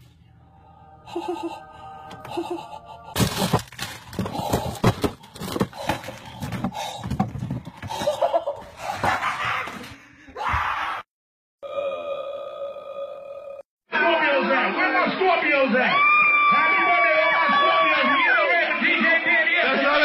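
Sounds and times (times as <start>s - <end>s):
packaging crinkling: 3.2s - 6.7s
packages thudding on countertop: 3.2s - 8.2s.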